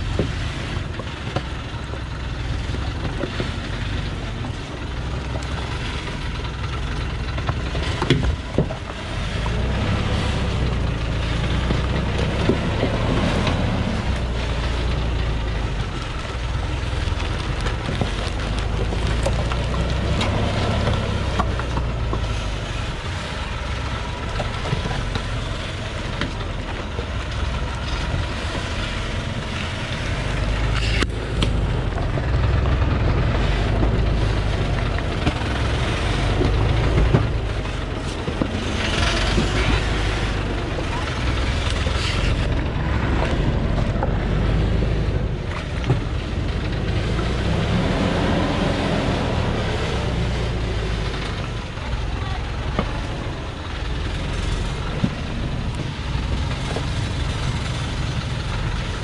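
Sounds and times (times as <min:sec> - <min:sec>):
diesel truck engine low revs: 0:00.0 - 0:59.0.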